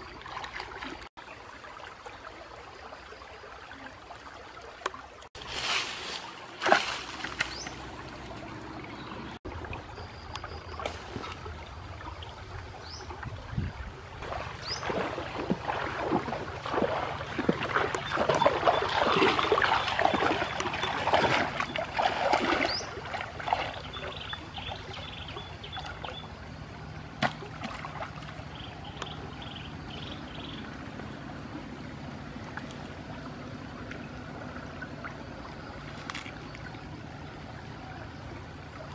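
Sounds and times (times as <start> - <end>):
water splashing as someone wades: 0.0 - 13.3, 14.0 - 29.4
wooden pole jabbing into water: 27.2 - 28.3.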